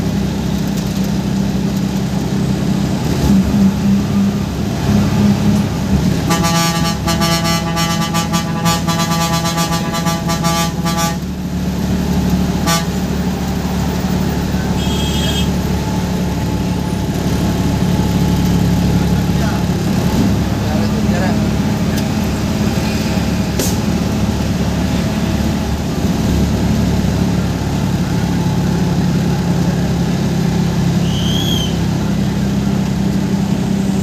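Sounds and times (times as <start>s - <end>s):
diesel bus engine running: 0.0s - 34.0s
bus horn tooting: 6.2s - 11.5s, 12.5s - 16.0s, 31.0s - 31.8s.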